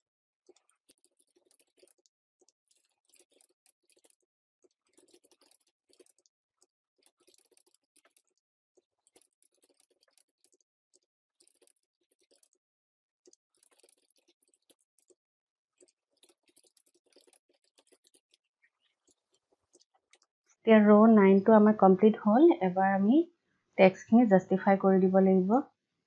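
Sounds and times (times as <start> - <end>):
faint keyboard typing: 0.0 - 6.3, 7.0 - 12.6, 13.2 - 15.2, 15.8 - 20.8.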